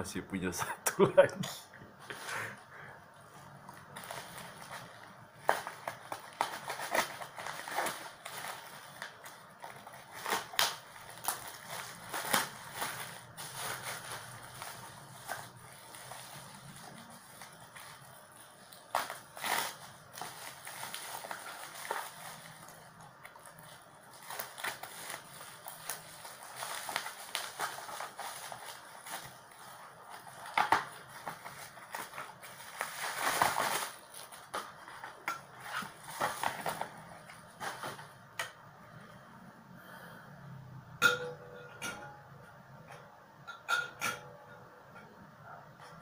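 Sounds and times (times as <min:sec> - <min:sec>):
plastic packaging crinkling: 0:03.5 - 0:38.4.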